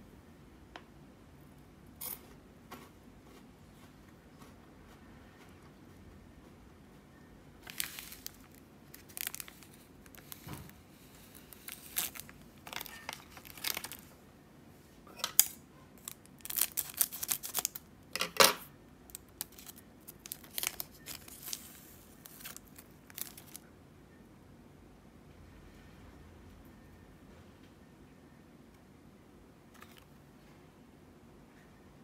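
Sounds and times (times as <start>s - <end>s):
plastic wrapper crinkling: 7.6s - 14.2s, 16.0s - 17.9s, 19.1s - 23.6s.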